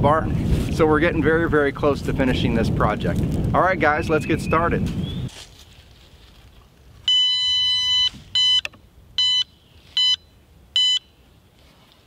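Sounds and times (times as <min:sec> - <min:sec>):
metal detector beeping: 0:07.0 - 0:11.2.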